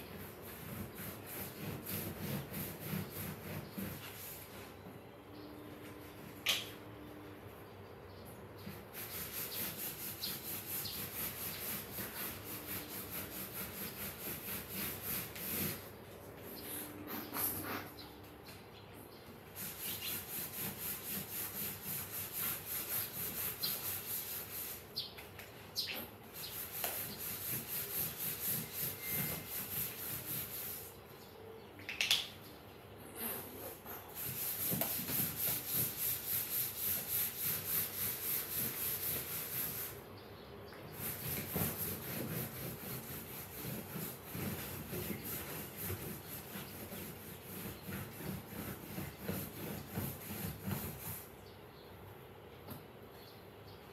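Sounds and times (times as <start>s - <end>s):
cloth scrubbing upholstery: 9.0s - 15.9s, 26.4s - 30.9s, 41.0s - 51.3s.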